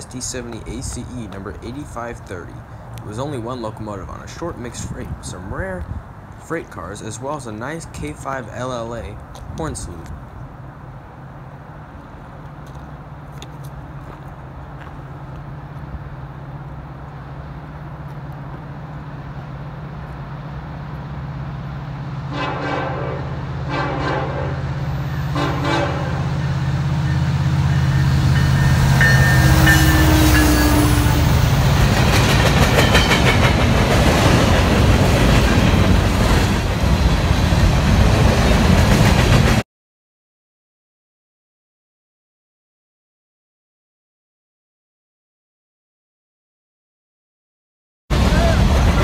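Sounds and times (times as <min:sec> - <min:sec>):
diesel locomotive engine rumble: 0:00.0 - 0:39.6, 0:48.1 - 0:49.0
train air horn blasts: 0:22.3 - 0:31.6
wheels on rails: 0:26.3 - 0:39.6.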